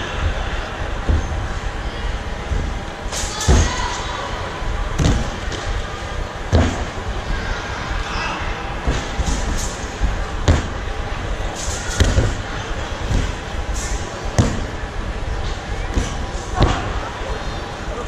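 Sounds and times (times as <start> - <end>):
background hubbub: 0.0 - 18.0
body thudding on foam mat: 6.5 - 6.9.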